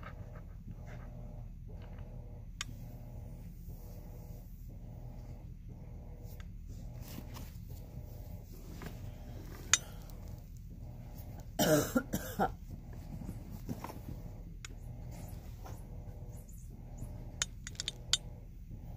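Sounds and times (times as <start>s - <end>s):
low steady hum: 0.0s - 18.9s
person coughing: 11.6s - 12.6s.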